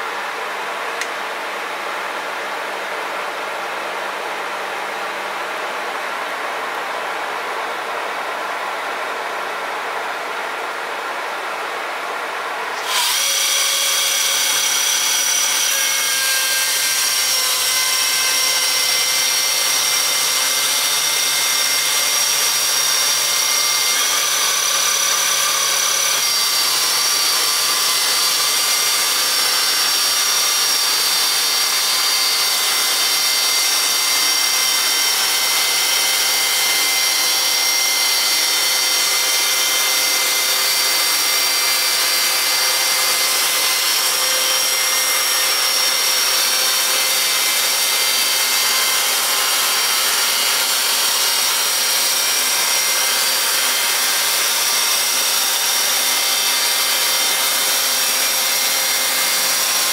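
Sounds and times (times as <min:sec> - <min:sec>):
chainsaw mill cutting log: 0:12.8 - 0:59.9.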